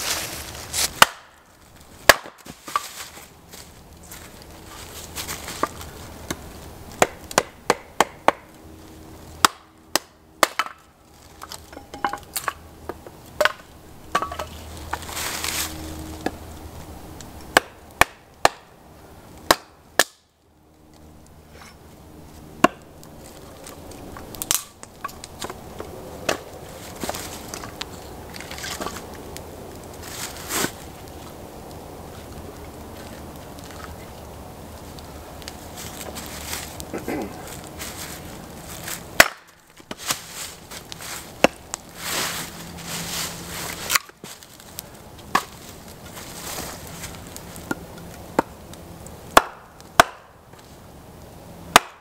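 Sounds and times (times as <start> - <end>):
hatchet splitting kindling: 0.7 - 1.3, 2.0 - 3.2, 39.2 - 42.4.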